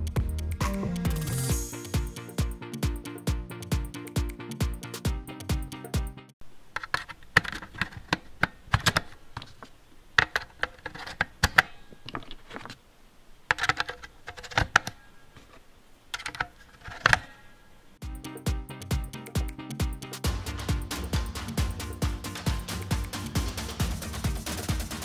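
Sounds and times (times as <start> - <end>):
batteries clicking into charger: 13.5 - 15.0.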